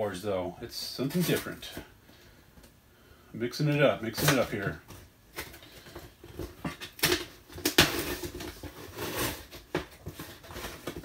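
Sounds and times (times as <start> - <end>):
packaging rustling and crinkling: 4.0 - 11.0.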